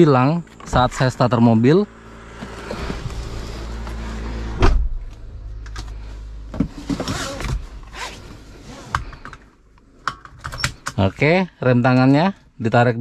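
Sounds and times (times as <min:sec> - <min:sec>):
steady low rumble: 0:00.0 - 0:08.7
car door shutting thump: 0:04.5 - 0:05.1.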